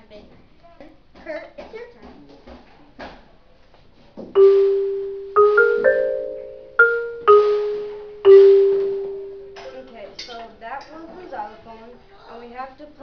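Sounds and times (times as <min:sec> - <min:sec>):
xylophone notes: 0:04.4 - 0:09.8.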